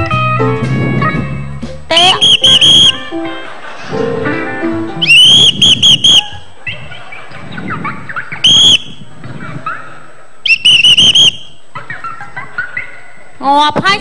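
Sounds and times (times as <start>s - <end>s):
whistle toots: 1.9s - 3.1s, 5.0s - 6.5s, 8.3s - 9.1s, 10.4s - 11.6s.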